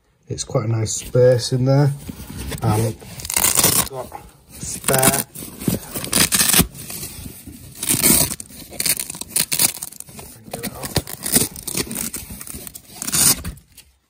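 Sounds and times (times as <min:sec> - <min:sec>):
velcro ripping apart: 0:02.6 - 0:04.0, 0:04.8 - 0:07.0, 0:07.7 - 0:13.6.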